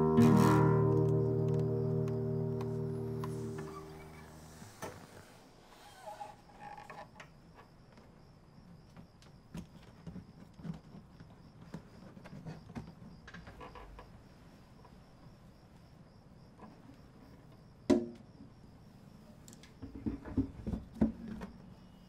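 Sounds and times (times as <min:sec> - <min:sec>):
high-pitched pulsing chirr: 0:00.0 - 0:04.8
faint creaks: 0:02.6 - 0:08.2, 0:08.8 - 0:15.1.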